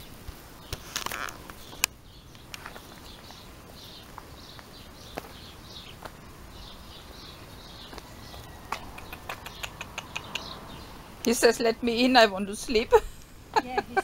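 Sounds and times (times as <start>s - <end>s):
bird chirping: 0.0s - 13.0s.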